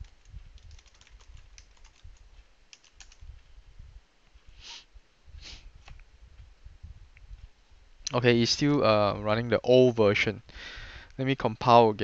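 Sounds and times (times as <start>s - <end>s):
laptop keyboard clicks: 0.1s - 2.1s, 2.7s - 3.2s
brief loud hiss: 4.6s - 5.6s.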